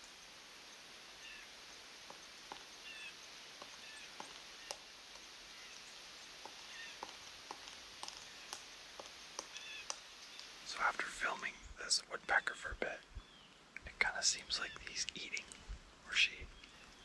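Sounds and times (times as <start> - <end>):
steady hiss: 0.0 - 17.0
woodpecker knocking on tree: 2.0 - 2.9, 3.5 - 10.5.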